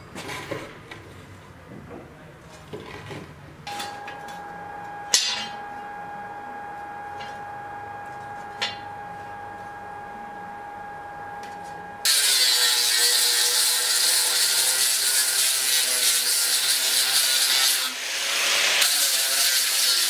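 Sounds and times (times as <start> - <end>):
steady high hum: 3.7 - 12.1
sword clanking on anvil: 5.1 - 5.6.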